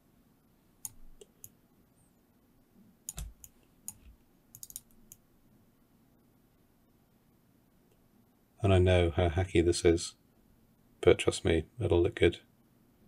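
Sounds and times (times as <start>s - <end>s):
mouse and keyboard clicks: 3.1s - 5.2s.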